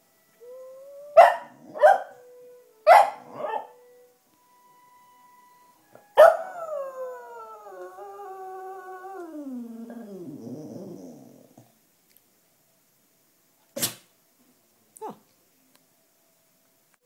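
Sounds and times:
dog barking: 0:01.2 - 0:02.1, 0:02.9 - 0:03.7
dog howling: 0:06.2 - 0:11.6.

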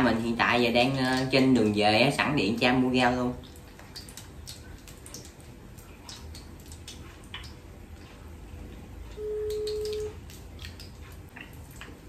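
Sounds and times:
phone ringback tone: 0:09.2 - 0:10.1.

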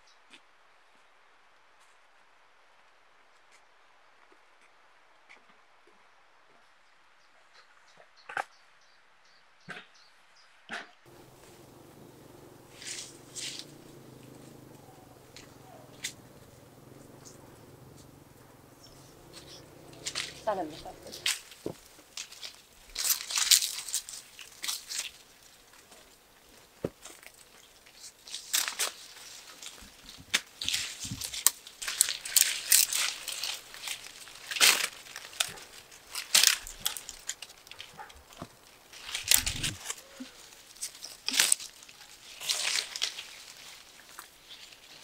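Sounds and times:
leafy branches rustling: 0:11.1 - 0:45.0.

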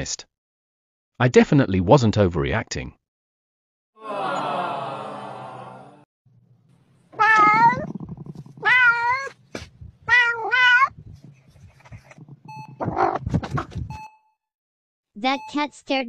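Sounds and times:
cat meowing: 0:07.2 - 0:08.0, 0:08.6 - 0:09.3, 0:10.0 - 0:11.0.

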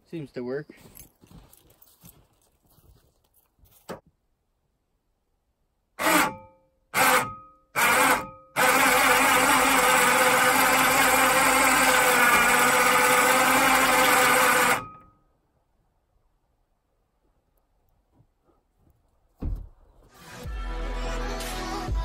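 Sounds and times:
electric winch motor whine: 0:06.0 - 0:15.1.

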